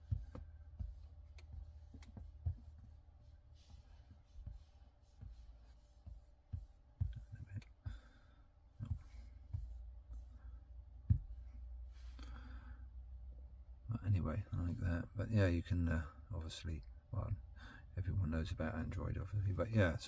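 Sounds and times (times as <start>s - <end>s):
car cabin hum: 0.0s - 8.1s.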